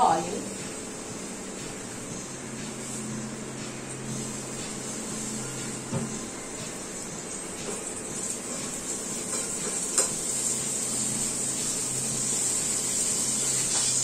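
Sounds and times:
oil sizzling and spattering in pan: 7.6s - 14.0s.

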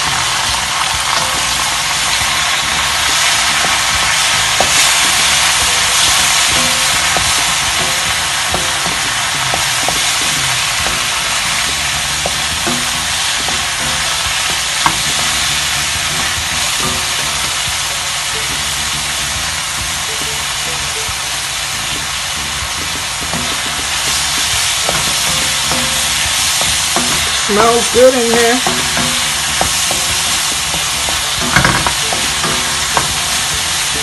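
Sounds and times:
vegetables sizzling in hot oil: 0.0s - 34.0s
wooden spatula scraping wok: 21.5s - 34.0s.

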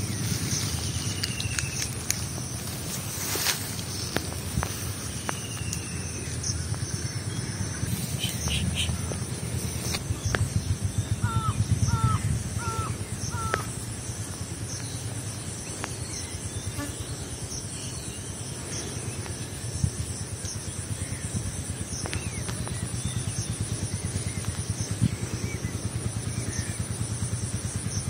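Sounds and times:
bird calling: 0.0s - 14.1s
low rumble: 0.0s - 16.5s.

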